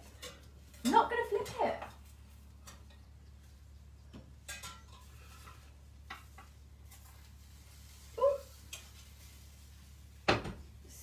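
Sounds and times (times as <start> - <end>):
low steady hum: 0.0 - 11.0
fork scraping a frying pan: 4.4 - 9.3.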